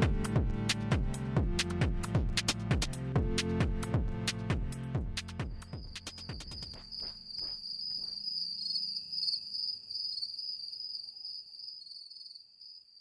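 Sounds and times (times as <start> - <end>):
music track: 0.0 - 7.5
crickets trilling: 5.7 - 13.0.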